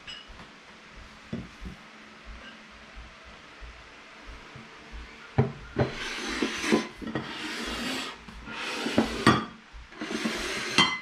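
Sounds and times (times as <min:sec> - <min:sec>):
plates knocking on table: 0:05.4 - 0:07.8, 0:08.8 - 0:09.6
plates scraping on tabletop: 0:05.4 - 0:11.0.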